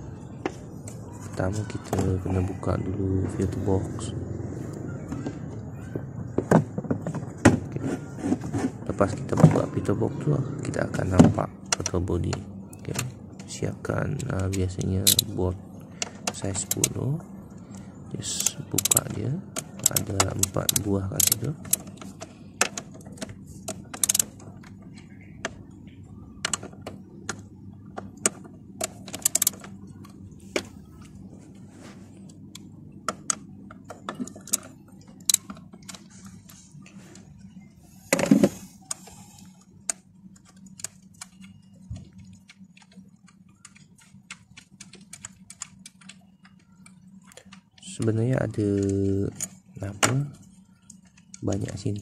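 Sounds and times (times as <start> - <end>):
faint steady hum: 0.0 - 52.0.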